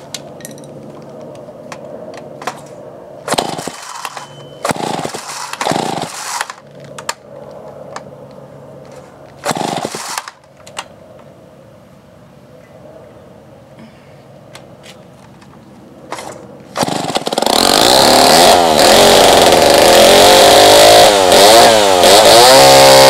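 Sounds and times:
chainsaw engine idling and revving: 3.3s - 4.1s, 4.7s - 6.6s, 9.4s - 10.4s, 16.7s - 23.0s.

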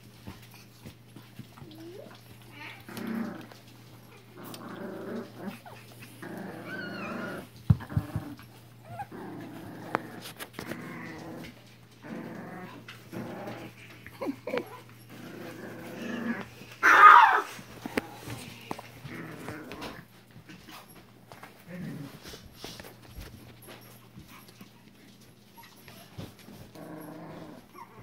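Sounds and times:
puppies play-growling: 0.0s - 28.0s
puppy high cry: 16.8s - 17.5s.

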